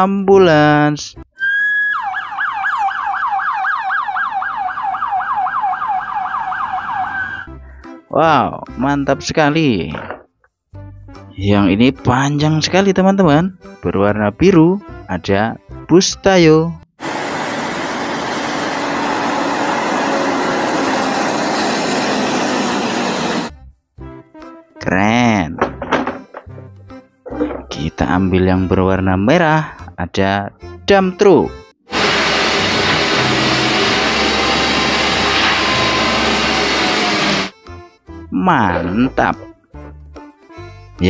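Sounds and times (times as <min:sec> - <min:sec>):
electronic ambulance siren: 0:01.4 - 0:07.5, 0:33.9 - 0:37.5
bus engine rumble: 0:17.0 - 0:23.5.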